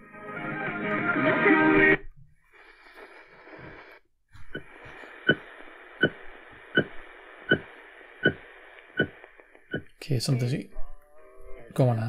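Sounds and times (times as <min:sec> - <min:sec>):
radio static: 0:02.5 - 0:10.6.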